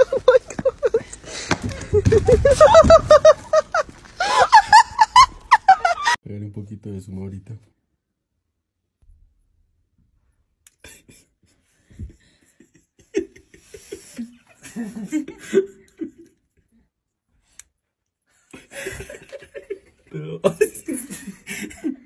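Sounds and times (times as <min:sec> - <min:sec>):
person laughing and giggling: 0:00.0 - 0:06.2, 0:12.0 - 0:16.4, 0:18.5 - 0:22.0
breathing: 0:01.1 - 0:01.8, 0:04.2 - 0:04.5.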